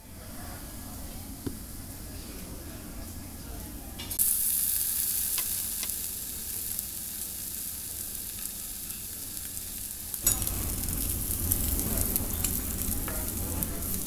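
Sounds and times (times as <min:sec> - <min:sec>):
low background noise: 0:00.0 - 0:14.0
meat sizzling on grill: 0:04.2 - 0:14.0.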